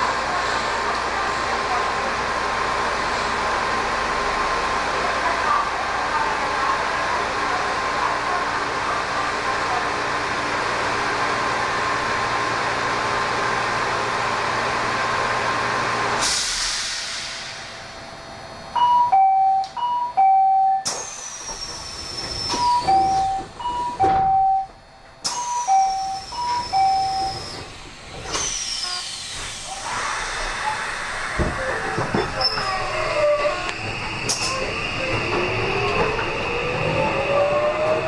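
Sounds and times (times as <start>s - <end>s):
train interior hum: 0.0s - 38.0s
sharp whistling hisses: 28.3s - 31.3s.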